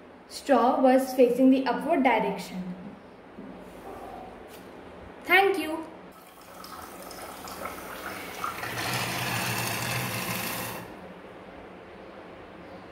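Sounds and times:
water trickling into a glass: 6.2s - 10.8s.

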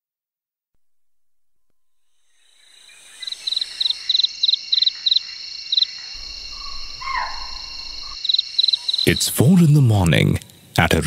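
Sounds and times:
short insect chirps: 2.0s - 9.4s
cricket trill: 2.2s - 10.3s
low hum: 6.2s - 8.2s.

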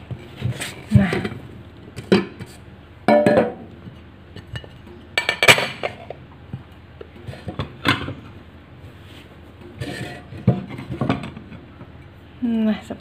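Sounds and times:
metal pan and plate knocking: 3.1s - 3.6s.

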